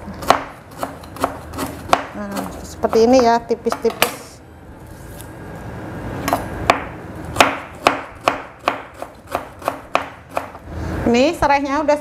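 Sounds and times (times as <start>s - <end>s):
knife chopping on wooden board: 0.2s - 4.2s, 6.2s - 10.6s.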